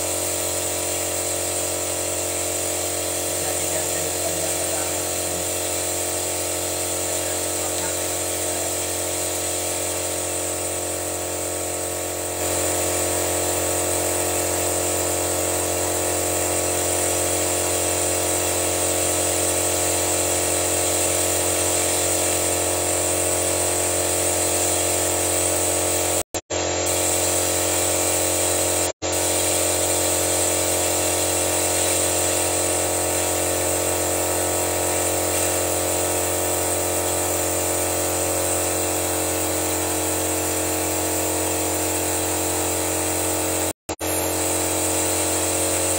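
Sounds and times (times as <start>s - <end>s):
compressed air hissing: 0.0s - 45.9s
steady hum: 2.3s - 14.2s.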